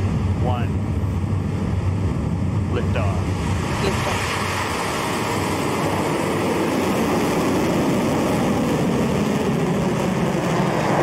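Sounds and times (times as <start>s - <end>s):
rocket engines rumbling: 0.0s - 11.0s.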